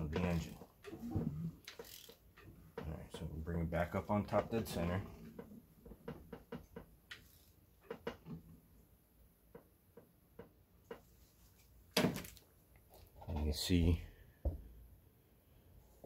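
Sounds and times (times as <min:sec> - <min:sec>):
hand ratchet clicking: 0:01.6 - 0:02.2.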